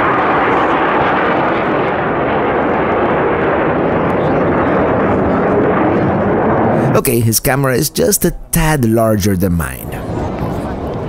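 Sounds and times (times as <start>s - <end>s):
fighter jet passing overhead: 0.0s - 8.6s.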